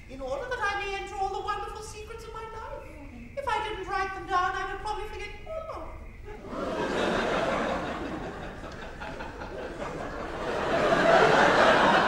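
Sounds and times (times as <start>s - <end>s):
audience laughing: 6.3s - 12.0s.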